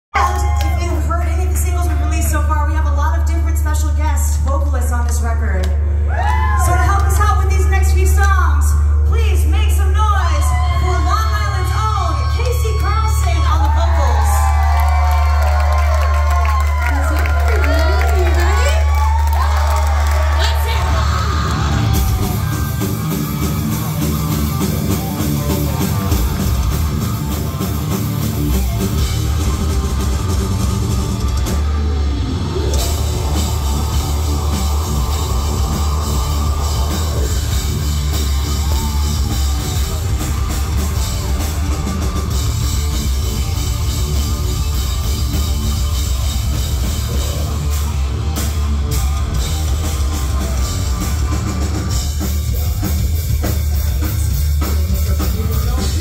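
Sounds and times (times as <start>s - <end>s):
drum kit: 0.1s - 56.0s
distorted electric guitars: 19.9s - 56.0s.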